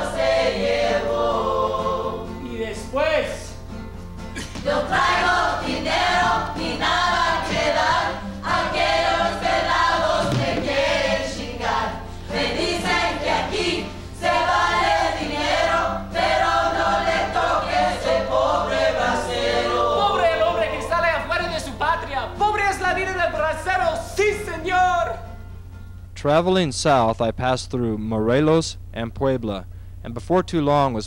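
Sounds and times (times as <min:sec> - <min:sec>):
group of voices singing: 0:00.0 - 0:02.6, 0:04.4 - 0:21.3
low electrical hum: 0:00.0 - 0:31.0.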